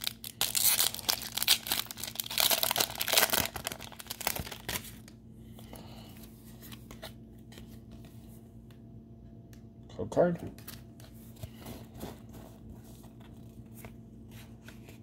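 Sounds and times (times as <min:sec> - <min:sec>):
foil wrapper tearing and crinkling: 0:00.0 - 0:05.1.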